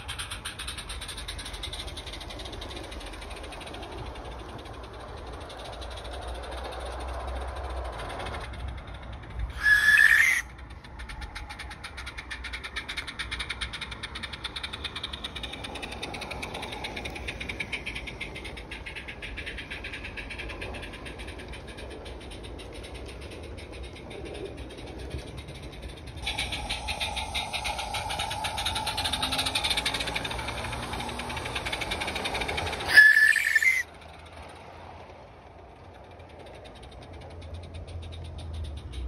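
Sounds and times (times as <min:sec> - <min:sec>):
steam locomotive chuffing: 0:00.0 - 0:39.0
train rumbling on track: 0:00.0 - 0:39.0
steam locomotive whistle: 0:32.9 - 0:33.8.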